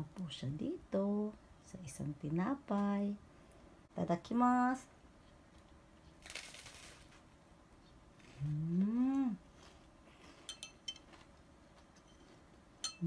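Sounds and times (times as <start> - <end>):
woman humming mmm: 8.3 - 9.5.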